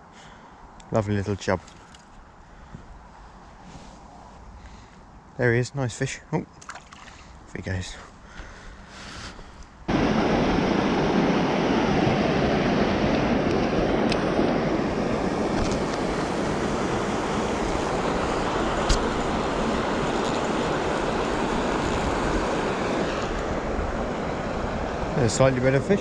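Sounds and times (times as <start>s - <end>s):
water rushing: 9.9s - 26.0s.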